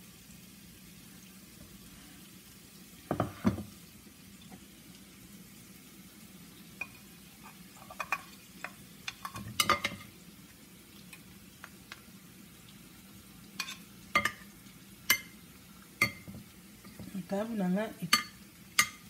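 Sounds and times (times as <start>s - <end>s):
onions sizzling in a pan: 0.0s - 19.0s
plate and spoon knocking a pan: 3.1s - 3.7s, 7.8s - 10.1s, 13.6s - 14.5s, 16.0s - 17.1s, 18.1s - 19.0s.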